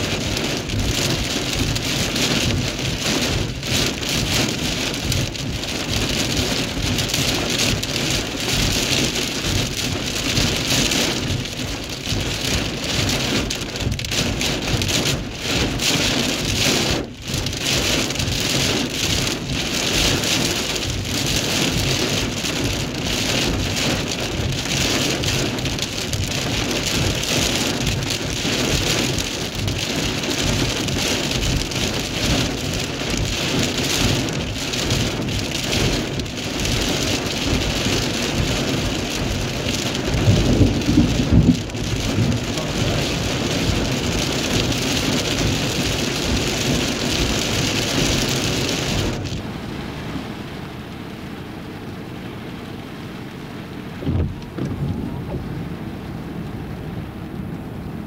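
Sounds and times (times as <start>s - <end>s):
heavy rain on a car: 0.0s - 58.0s
thunder rumble: 37.5s - 49.5s, 54.0s - 56.2s.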